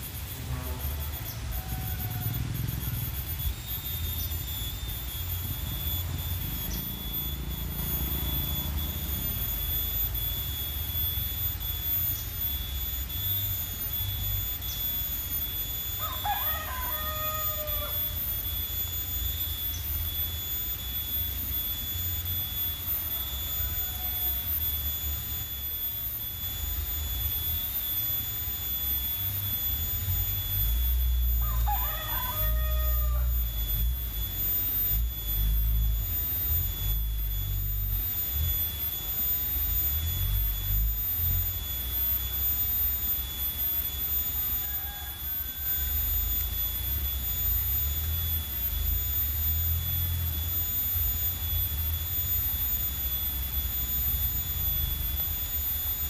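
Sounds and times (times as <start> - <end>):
faint steady high tone: 0.0 - 56.0
rooster crowing: 0.2 - 9.5, 14.6 - 20.0, 22.1 - 25.4, 29.7 - 36.0, 43.8 - 48.6.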